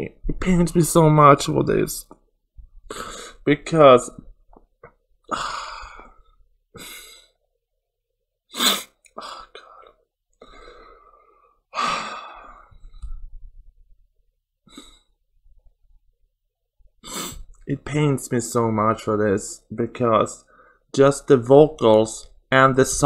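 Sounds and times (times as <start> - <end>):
man sighing heavily: 5.3 - 7.3, 11.7 - 13.0.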